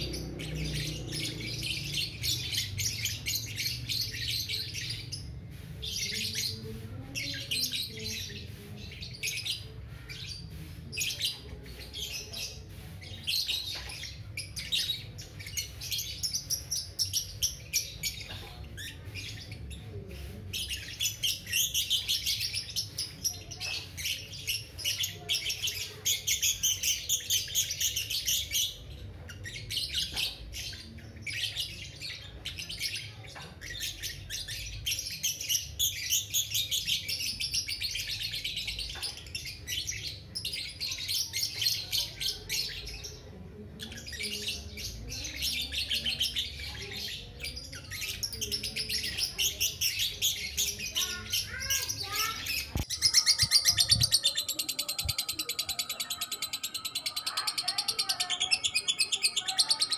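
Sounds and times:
lovebird chattering: 0:51.4 - 0:59.9.

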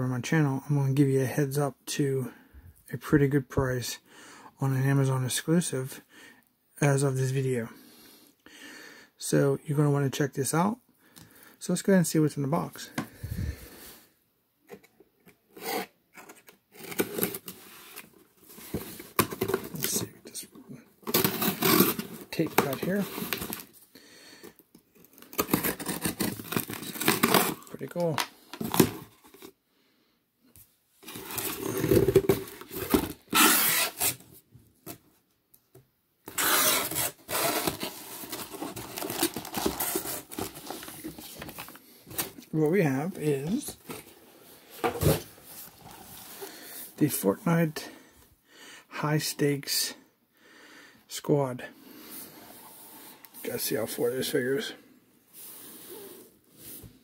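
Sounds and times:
cardboard and packaging rustling: 0:15.6 - 0:23.9, 0:25.0 - 0:29.6, 0:31.0 - 0:35.2, 0:36.2 - 0:47.2.

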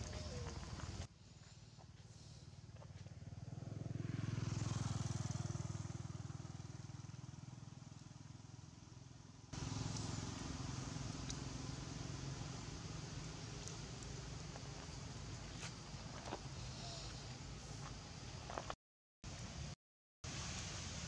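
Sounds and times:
steady engine hum: 0:00.0 - 0:18.8
passing vehicle engine hum: 0:02.0 - 0:18.3.

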